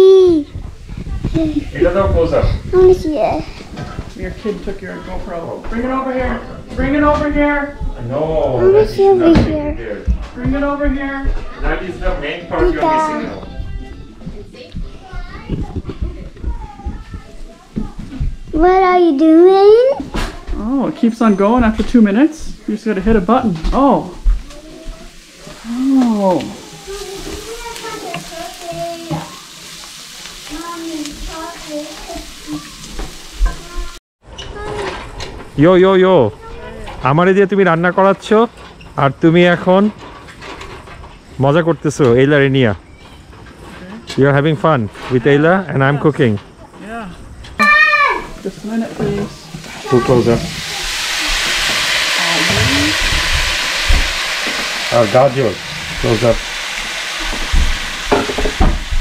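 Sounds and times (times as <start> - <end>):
onions sizzling in oil: 0.0 - 6.2, 17.6 - 34.0, 47.6 - 59.0
wooden spoon stirring and scraping: 22.5 - 34.0.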